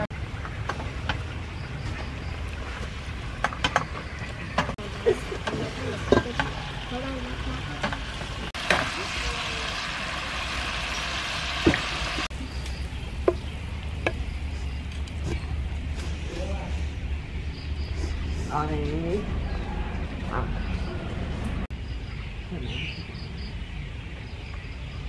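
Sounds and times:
food sizzling in a pan: 5.3 - 13.4.

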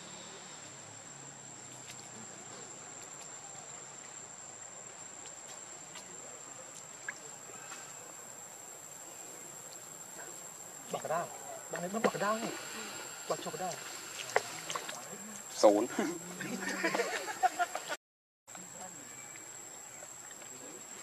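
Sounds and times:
insect droning high-pitched: 0.0 - 17.7
faint outdoor background noise: 0.0 - 21.0.

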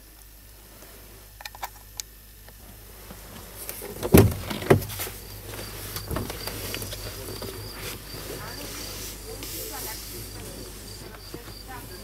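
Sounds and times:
rustling: 2.6 - 12.0.

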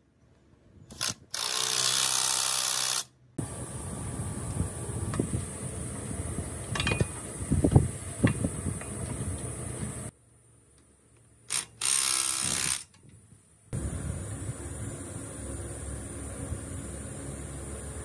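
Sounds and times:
steel frame parts clanking: 6.7 - 7.2.

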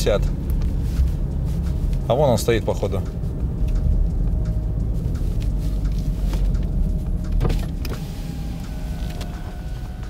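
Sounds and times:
car engine and road rumble: 0.0 - 10.0.

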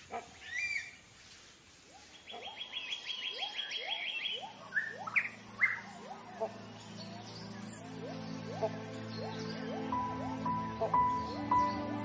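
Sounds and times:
loud sharp bird chirps: 2.0 - 11.9
birds calling high notes: 2.1 - 12.0
lower rising bird notes: 2.5 - 12.0.

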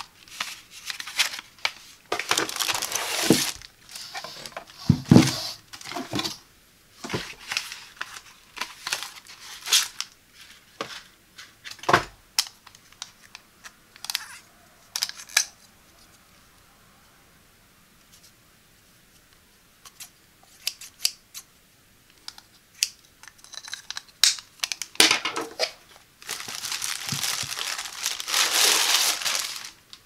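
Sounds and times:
plastic wrap crinkling: 0.0 - 4.8, 7.1 - 10.1, 25.6 - 30.0
cardboard rustling: 0.0 - 6.4, 26.2 - 30.0.

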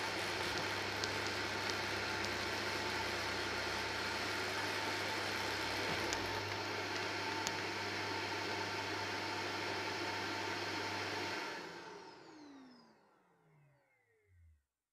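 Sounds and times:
vacuum cleaner running: 0.0 - 14.6
motor winding down whine: 10.0 - 14.6.

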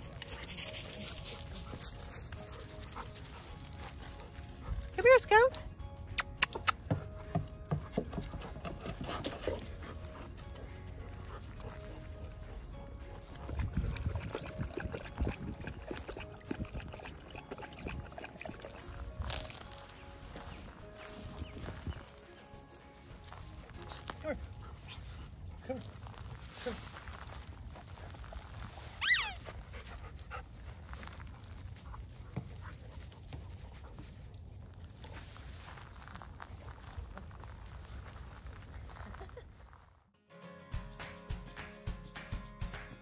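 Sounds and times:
dog lapping water: 13.5 - 19.0
dog whining: 29.0 - 29.6.

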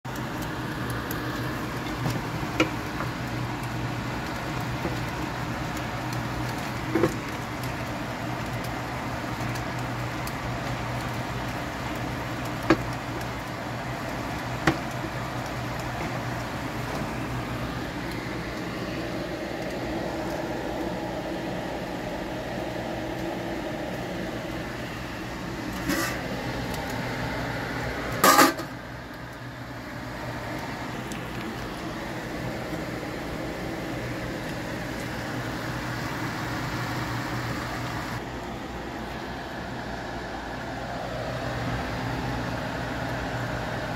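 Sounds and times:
kitchen appliance humming: 0.0 - 43.9.

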